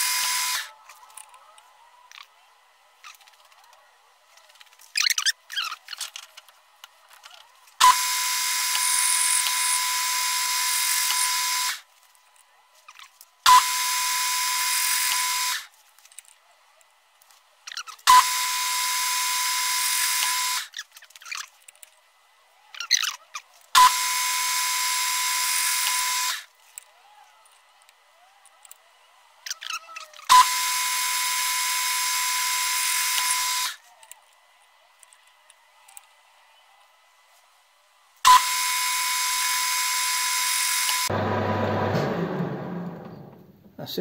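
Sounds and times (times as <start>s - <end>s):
lathe motor whine: 38.3s - 43.3s.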